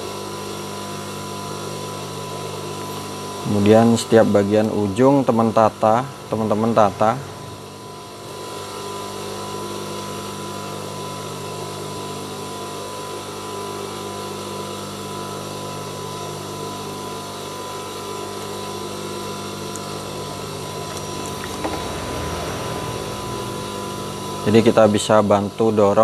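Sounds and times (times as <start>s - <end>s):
sewing machine motor humming: 18.4s - 24.7s.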